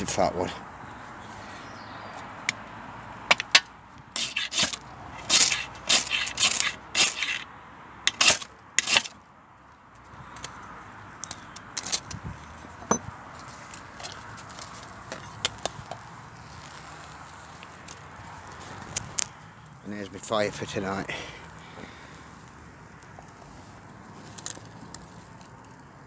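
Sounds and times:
knife scraping ferro rod: 0:04.2 - 0:07.5, 0:08.1 - 0:09.2.

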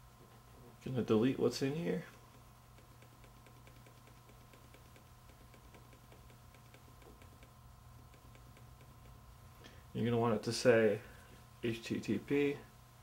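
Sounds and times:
low steady hum: 0:00.0 - 0:13.0
phone key ticking: 0:02.3 - 0:09.2.

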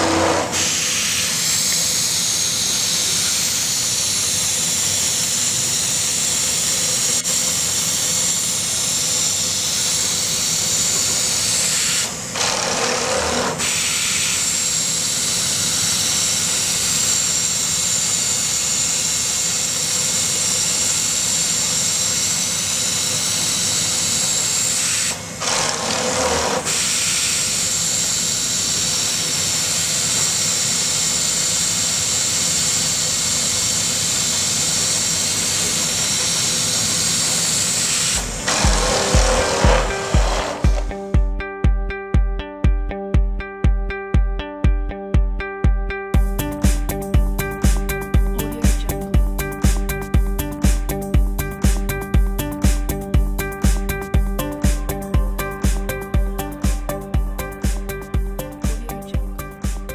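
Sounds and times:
machine noise: 0:00.0 - 0:41.1.

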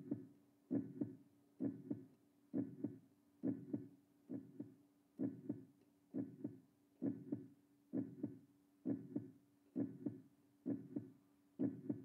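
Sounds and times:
heartbeat-like double thumps: 0:06.2 - 0:12.0.

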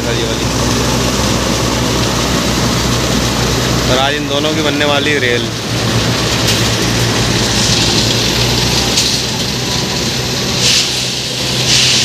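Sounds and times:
diesel engine running: 0:00.0 - 0:12.0
short bursts of hiss: 0:10.6 - 0:12.0.

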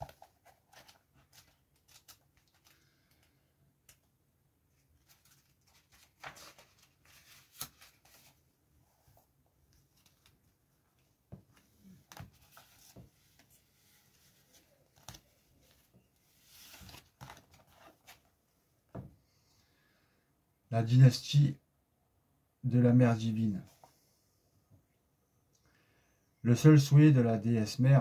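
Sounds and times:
playing cards being handled: 0:00.0 - 0:04.1, 0:04.8 - 0:08.4, 0:11.3 - 0:18.3.

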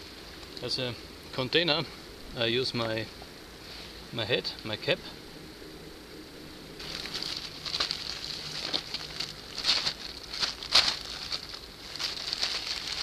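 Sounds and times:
plastic sheet crinkling: 0:06.8 - 0:13.0.

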